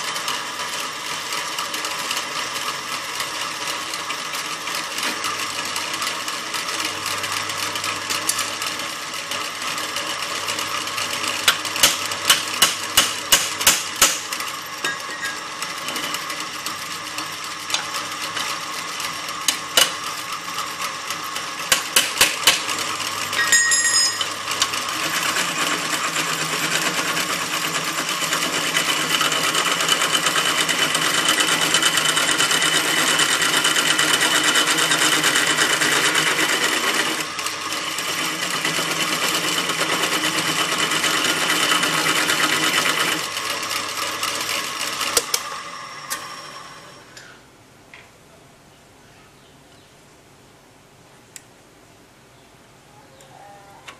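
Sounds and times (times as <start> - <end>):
drill press cutting metal: 0.0 - 47.4.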